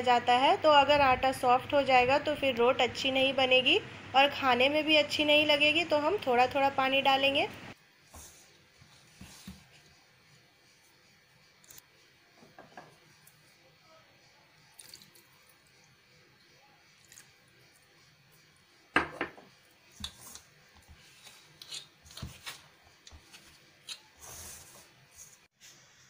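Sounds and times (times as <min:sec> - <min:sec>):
hands mixing dough in bowl: 0:08.0 - 0:11.9, 0:19.9 - 0:25.5
water pouring: 0:14.7 - 0:15.5, 0:17.0 - 0:17.3
small clicks and scrapes: 0:20.0 - 0:25.5.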